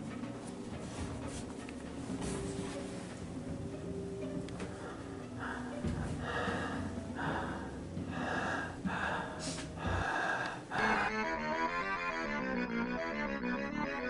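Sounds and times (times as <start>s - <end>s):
keyboard music: 0.0s - 14.0s
person breathing heavily: 4.6s - 11.2s.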